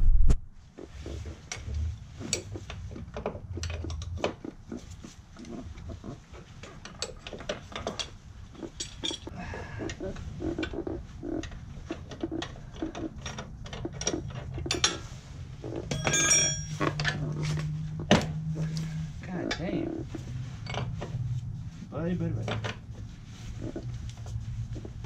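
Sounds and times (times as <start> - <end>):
wrenches clicking on metal: 1.4 - 4.4, 6.6 - 9.3
ringing metal clink: 15.9 - 17.2.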